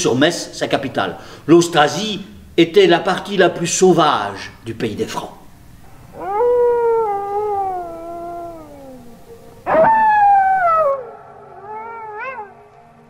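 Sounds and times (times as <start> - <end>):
wolf howls: 5.9 - 12.8.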